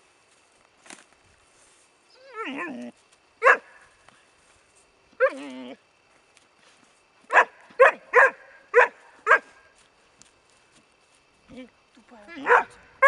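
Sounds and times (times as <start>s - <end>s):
dog whining: 2.1s - 2.9s
dog barking: 3.4s - 3.7s, 7.3s - 9.6s, 12.4s - 12.8s.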